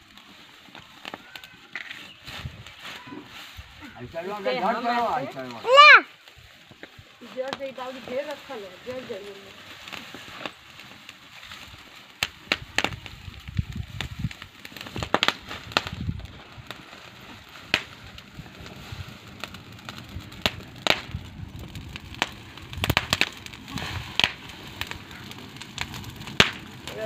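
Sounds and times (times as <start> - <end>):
chickpeas popping in flames: 0.0 - 27.0
fire crackling: 0.0 - 27.0.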